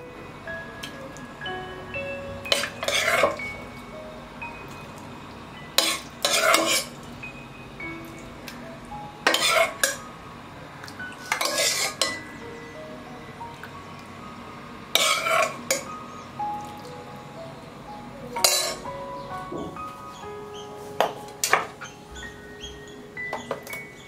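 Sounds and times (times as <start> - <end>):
soft chime-like music: 0.0 - 11.3, 12.0 - 24.0
metal ladle scraping and clinking: 2.5 - 3.4, 5.8 - 6.9, 9.3 - 10.0, 11.3 - 12.2.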